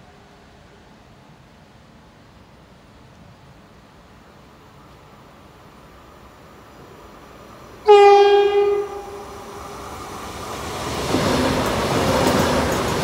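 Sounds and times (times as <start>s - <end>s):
train running noise: 0.0s - 13.0s
train horn: 7.8s - 9.6s.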